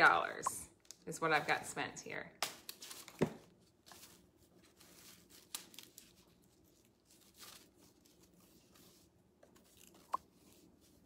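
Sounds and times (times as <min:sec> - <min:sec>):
low room hum: 0:00.0 - 0:11.0
rope rustling and scraping: 0:03.8 - 0:11.0.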